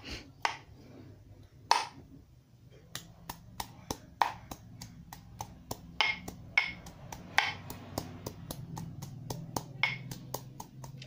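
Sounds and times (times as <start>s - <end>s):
pestle pounding in mortar: 2.8s - 11.0s.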